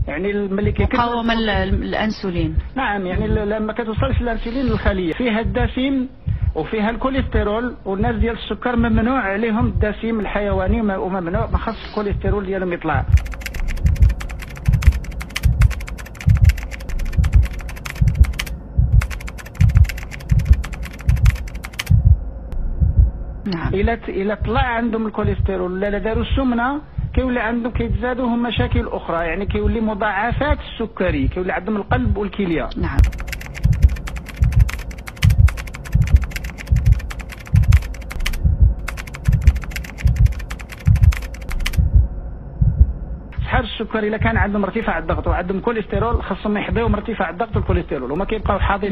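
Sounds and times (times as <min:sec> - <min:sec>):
deep thumps: 0:00.0 - 0:32.3, 0:32.9 - 0:43.6, 0:44.2 - 0:44.5, 0:45.1 - 0:47.8
keyboard key clicks: 0:13.2 - 0:22.0, 0:33.0 - 0:41.8.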